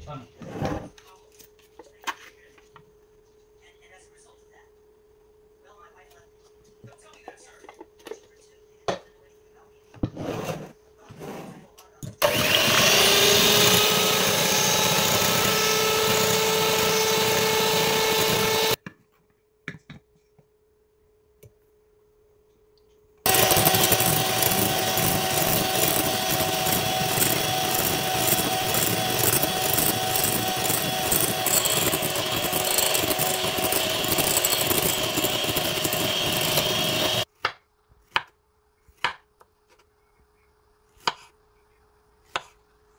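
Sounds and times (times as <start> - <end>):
electric hand mixer whipping cream: 12.2 - 18.8, 23.3 - 37.3.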